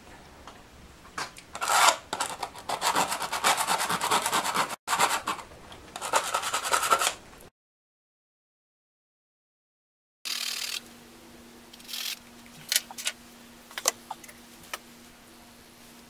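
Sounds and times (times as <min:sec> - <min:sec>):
sandpaper rasping on metal: 0:01.6 - 0:05.4, 0:06.0 - 0:07.2.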